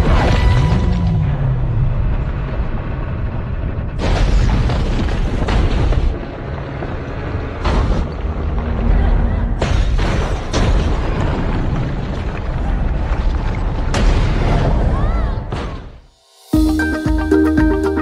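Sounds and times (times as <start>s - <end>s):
explosions: 0.0s - 6.5s, 7.4s - 16.1s
heavy rumble: 0.0s - 15.4s
film score music: 12.6s - 18.0s.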